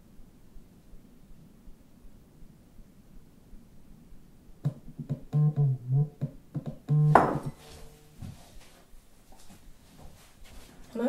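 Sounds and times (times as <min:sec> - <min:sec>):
electronic keyboard melody: 0:05.3 - 0:06.2, 0:06.9 - 0:07.3.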